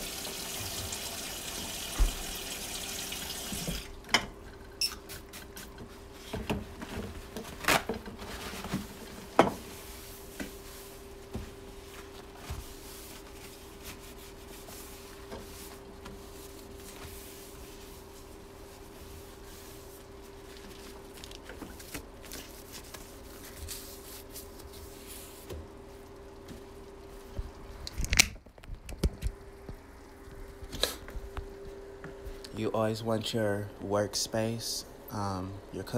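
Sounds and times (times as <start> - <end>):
faint steady hum: 0.0 - 35.9
cloth wiping wet countertop: 8.2 - 27.5.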